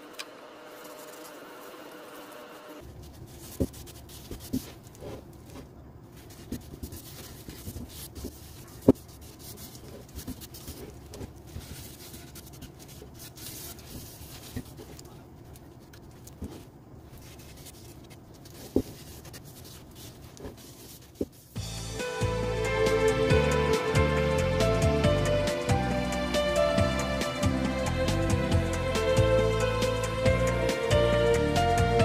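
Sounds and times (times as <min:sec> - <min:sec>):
cloth rubbing on wood: 0:00.6 - 0:15.2, 0:16.0 - 0:21.6.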